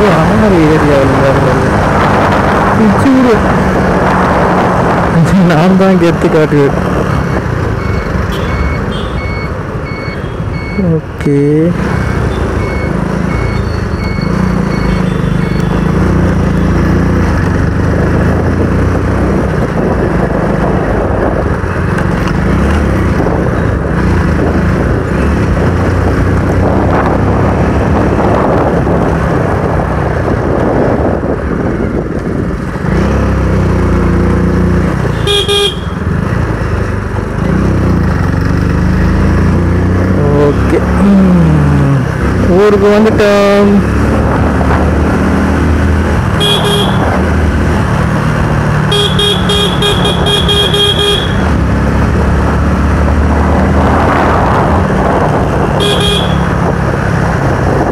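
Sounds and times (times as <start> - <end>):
wind and road noise: 0.0 - 57.9
vehicle horn honk: 8.3 - 9.2, 35.1 - 36.0, 46.4 - 47.1, 48.9 - 51.5, 55.8 - 56.6
motorcycle engine running: 30.6 - 53.6, 54.8 - 57.9.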